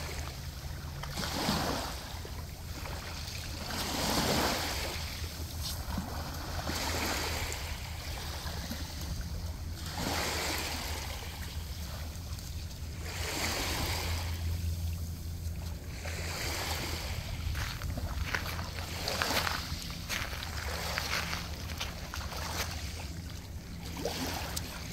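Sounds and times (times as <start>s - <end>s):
waves washing over pebbly shore: 1.1s - 9.0s, 9.7s - 12.1s, 12.9s - 15.1s
low rumble: 10.7s - 24.9s.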